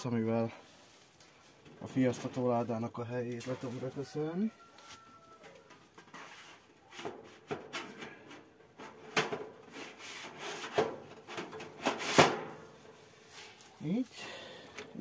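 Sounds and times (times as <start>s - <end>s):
cage parts scraping: 4.9s - 13.6s.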